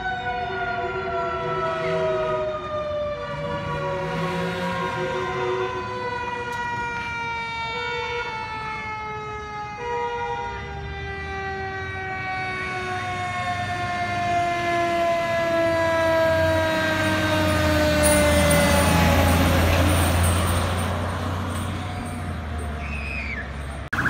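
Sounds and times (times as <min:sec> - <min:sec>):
fire truck siren: 0:00.0 - 0:24.0
truck engine rumble: 0:10.6 - 0:24.0.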